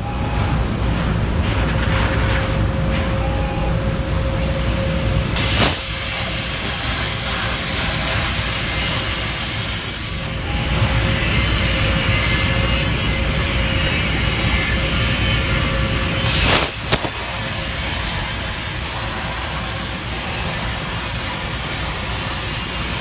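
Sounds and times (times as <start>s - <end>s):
plasma cutter hissing: 0.0s - 1.0s, 3.0s - 23.0s
constant hum: 0.0s - 23.0s
plasma arc blast: 5.3s - 10.3s, 14.3s - 23.0s.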